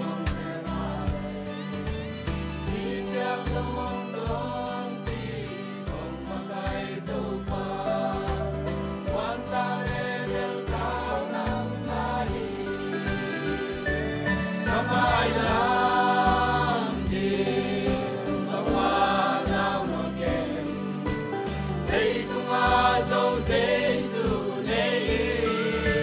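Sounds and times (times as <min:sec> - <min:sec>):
instrumental accompaniment: 0:00.0 - 0:26.0
mixed choir singing gospel: 0:00.0 - 0:26.0.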